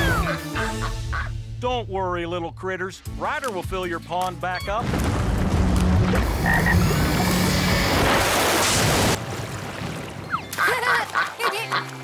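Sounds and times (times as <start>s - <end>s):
background music: 0.0s - 12.0s
cartoon water rushing: 5.9s - 12.0s.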